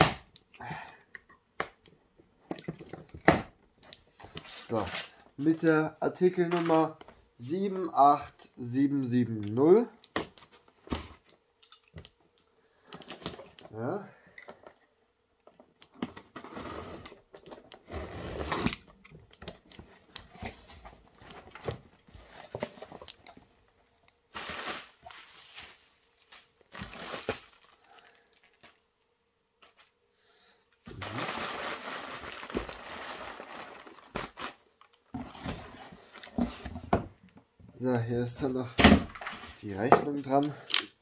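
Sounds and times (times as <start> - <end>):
plastic packing crinkling: 24.3 - 28.8, 30.9 - 35.8.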